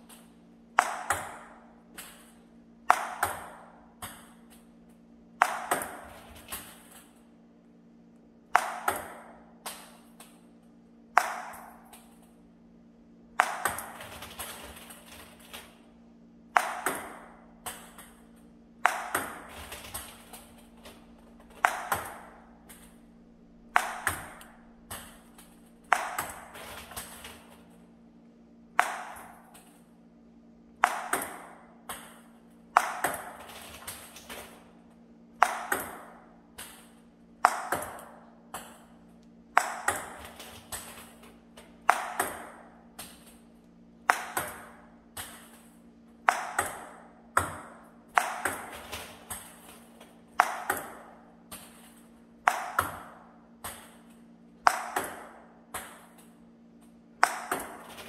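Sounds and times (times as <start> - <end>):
steady low hum: 0.0 - 58.0
ping-pong ball bouncing on table: 0.8 - 1.5, 2.9 - 4.4, 5.4 - 6.1, 8.5 - 9.4, 11.2 - 11.8, 13.4 - 14.0, 16.5 - 19.5, 21.6 - 23.0, 23.7 - 26.6, 28.8 - 29.4, 30.8 - 33.4, 35.4 - 36.8, 37.4 - 38.9, 39.5 - 40.2, 41.8 - 42.7, 44.0 - 45.4, 46.2 - 48.7, 50.4 - 51.1, 52.5 - 54.0, 57.2 - 57.8
ping-pong ball paddle cracks: 0.8 - 4.6, 5.4 - 7.1, 8.5 - 10.4, 11.2 - 12.2, 13.4 - 14.2, 16.6 - 20.6, 21.4 - 23.0, 23.6 - 27.4, 28.8 - 29.8, 30.8 - 34.4, 35.4 - 38.9, 39.6 - 43.3, 44.0 - 49.8, 50.4 - 51.8, 52.5 - 56.3, 57.2 - 57.9.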